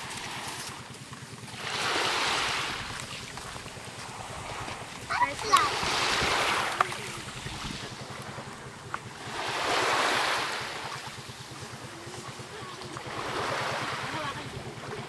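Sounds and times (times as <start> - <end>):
small waves washing ashore: 0.0 - 15.0
wind buffeting microphone: 2.4 - 9.2.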